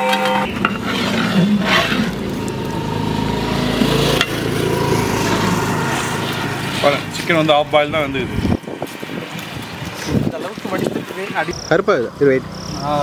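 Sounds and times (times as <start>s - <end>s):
metal ladle stirring: 0.0s - 3.0s
pot boiling hard: 0.0s - 11.6s.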